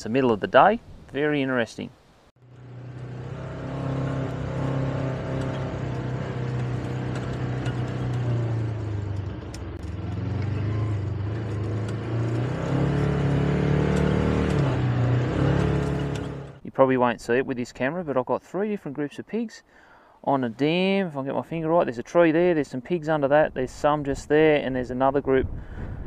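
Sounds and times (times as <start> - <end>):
buggy knocking and rattling: 2.4 - 16.6
off-road buggy engine running: 2.4 - 16.6.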